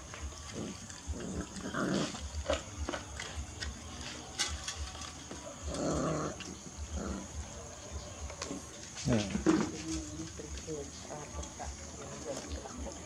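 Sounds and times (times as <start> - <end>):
puppies chewing and lapping: 0.0 - 13.0
puppy growls: 0.4 - 3.0, 5.5 - 9.8.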